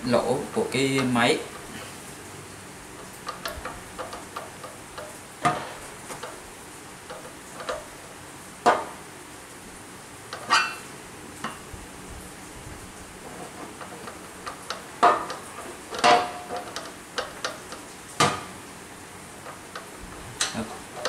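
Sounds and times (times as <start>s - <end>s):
light metal ticks and scrapes: 3.0s - 6.4s, 7.0s - 8.0s, 13.2s - 17.9s
metal knocks and clanks: 3.2s - 6.4s, 13.3s - 18.5s.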